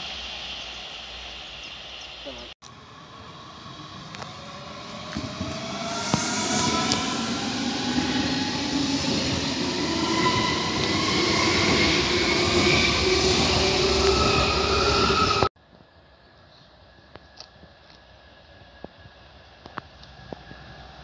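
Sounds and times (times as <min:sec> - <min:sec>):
train wheel and rail noise: 0:00.0 - 0:21.0
electric traction whine: 0:02.6 - 0:15.5.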